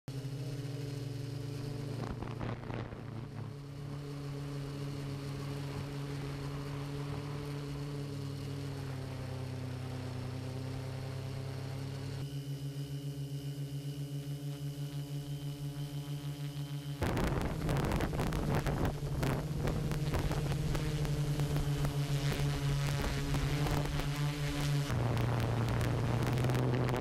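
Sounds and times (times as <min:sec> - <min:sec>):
drone propellers humming: 0:00.1 - 0:27.0
wind noise: 0:01.8 - 0:03.8, 0:17.0 - 0:27.0.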